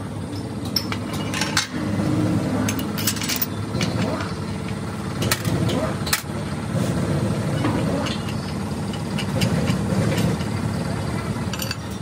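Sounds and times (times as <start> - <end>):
engine rumbling: 0.0 - 12.0
metallic clinks: 2.7 - 3.6, 11.5 - 12.0.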